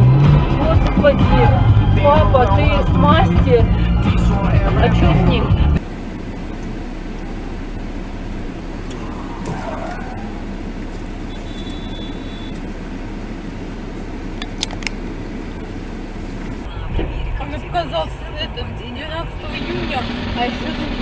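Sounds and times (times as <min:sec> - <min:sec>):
car engine and road noise: 0:00.0 - 0:21.0.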